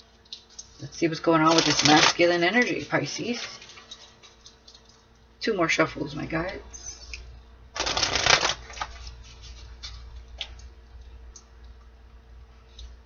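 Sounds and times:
cards being shuffled: 1.5s - 3.6s, 7.8s - 10.0s.

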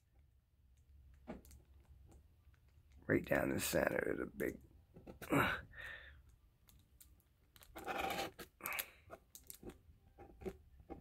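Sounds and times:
metal tool scraping paper: 7.7s - 8.5s.

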